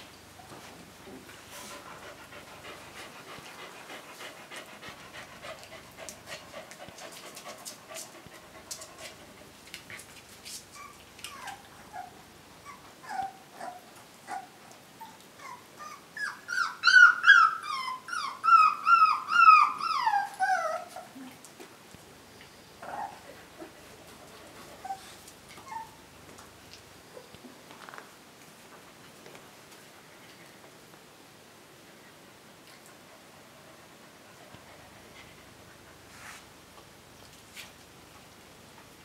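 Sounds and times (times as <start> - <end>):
puppies whimpering and yelping: 10.8 - 21.2, 24.8 - 26.0.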